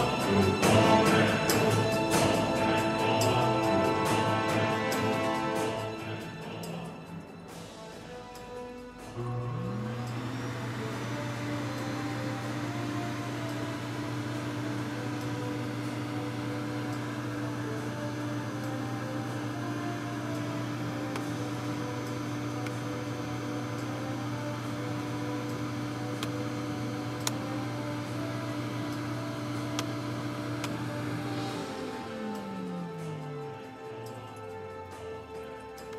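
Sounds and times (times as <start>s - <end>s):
vacuum cleaner running: 0.0s - 35.9s.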